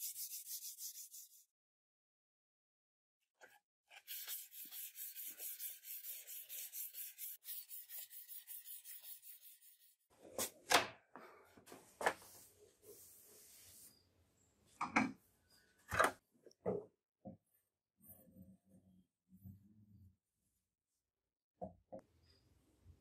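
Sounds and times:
sandpaper scratching on metal: 0:04.0 - 0:10.0.

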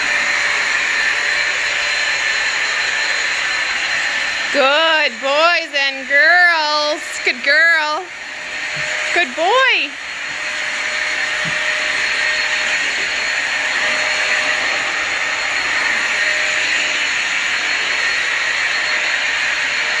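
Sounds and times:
vacuum cleaner running: 0:00.0 - 0:20.0.

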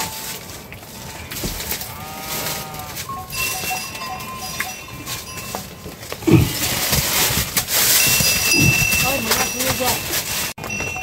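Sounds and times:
metal bell clanking: 0:03.0 - 0:11.0.

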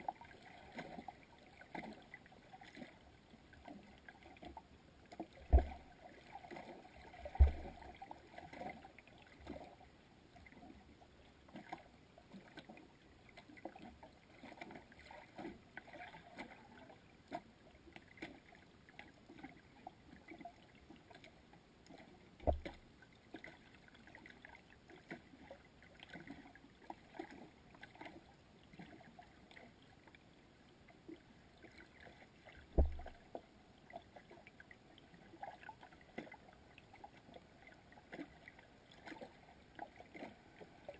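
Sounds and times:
faint underwater clicks and crackles: 0:00.0 - 0:40.9
dull deep thumps: 0:32.8 - 0:33.1.

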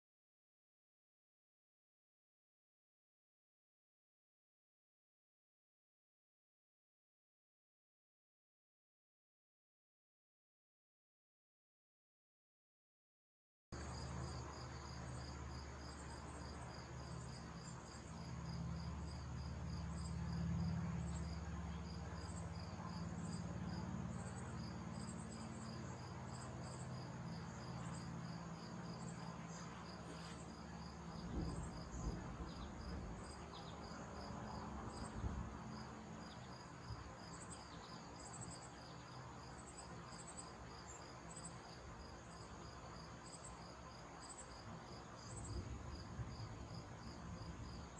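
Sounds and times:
insects chirping: 0:13.8 - 0:47.9.

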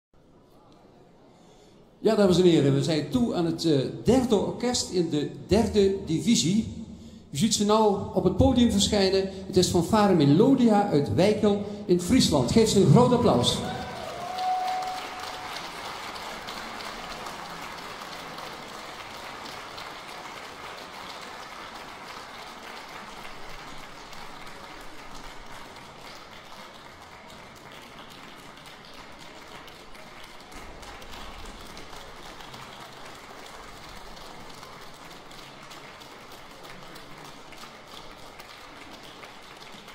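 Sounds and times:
audience applause: 0:12.5 - 0:39.9.

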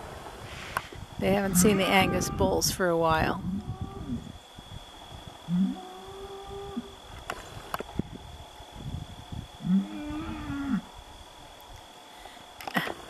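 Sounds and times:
bull bellowing: 0:01.3 - 0:02.6, 0:05.5 - 0:06.9, 0:09.6 - 0:10.9.

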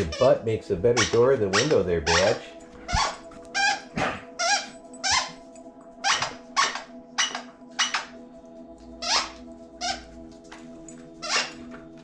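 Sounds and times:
squeaky dog toy squeaking: 0:00.0 - 0:00.4, 0:01.0 - 0:05.4, 0:06.0 - 0:08.2, 0:09.0 - 0:10.2, 0:11.2 - 0:11.7.

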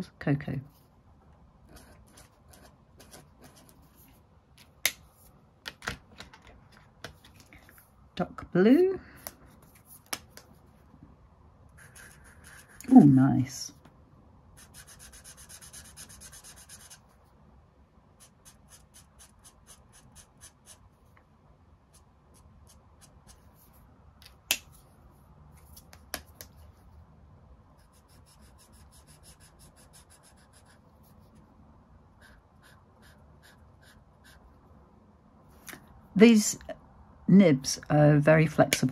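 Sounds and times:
marker rubbing on paper: 0:14.6 - 0:17.0, 0:32.2 - 0:34.4.

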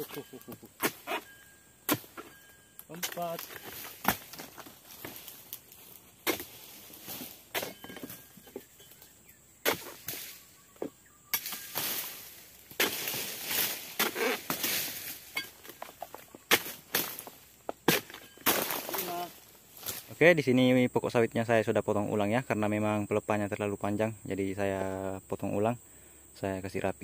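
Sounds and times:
rustling of cut fronds: 0:00.0 - 0:20.4.

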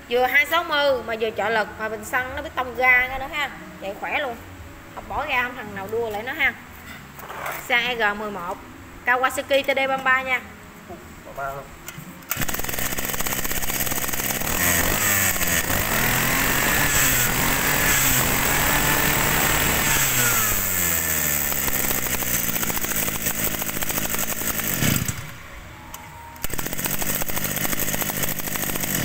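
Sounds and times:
brush-cutter engine revving: 0:12.3 - 0:25.4, 0:26.4 - 0:29.0.

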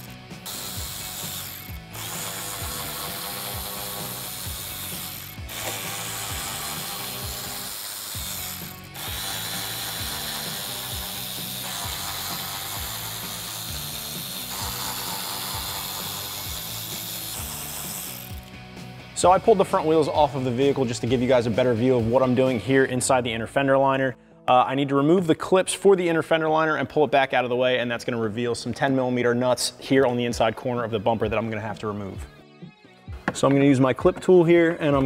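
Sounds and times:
hand ratchet clicking: 0:00.0 - 0:18.6
background music with low beat: 0:00.0 - 0:24.0, 0:30.0 - 0:35.0.

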